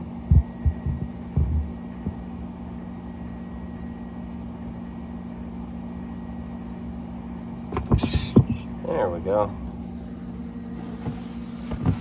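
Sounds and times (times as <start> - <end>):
low electrical hum: 0.0 - 12.0
short low knocks: 0.3 - 2.3.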